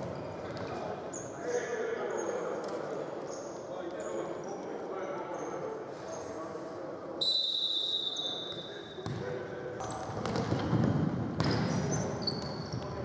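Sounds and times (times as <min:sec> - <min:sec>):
referee's whistle blast: 0:07.2 - 0:08.8
shoes squeaking on floor: 0:10.0 - 0:13.0.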